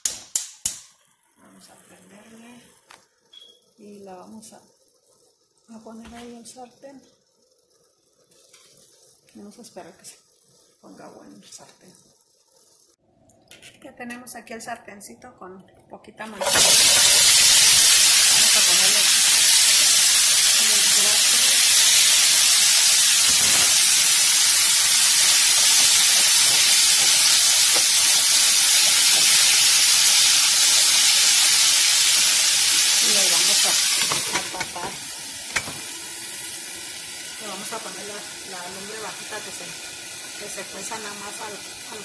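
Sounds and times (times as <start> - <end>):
broccoli sizzling in a pan: 16.3 - 42.0.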